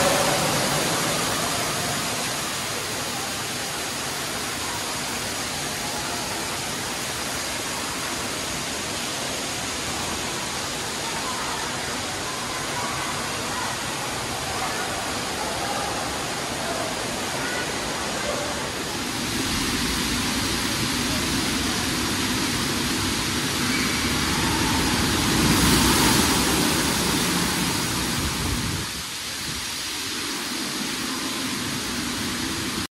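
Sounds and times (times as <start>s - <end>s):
running and splashing water: 0.0s - 32.9s.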